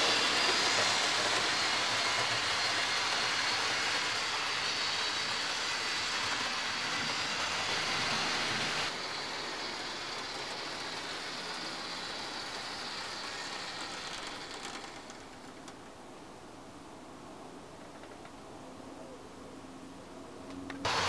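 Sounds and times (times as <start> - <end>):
model train motor whirring: 0.0 - 15.8.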